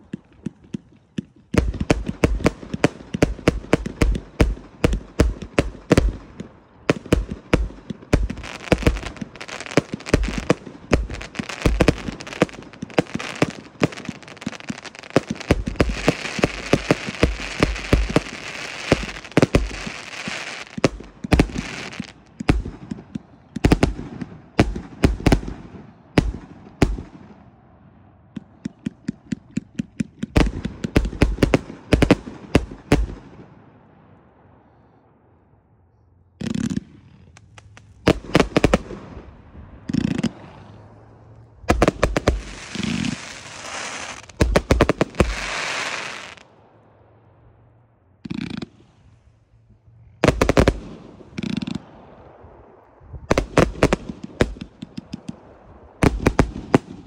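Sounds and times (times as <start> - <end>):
firework launch and burst bangs: 1.6 - 23.0, 41.7 - 46.6
firework hiss: 8.4 - 22.2, 41.8 - 46.4.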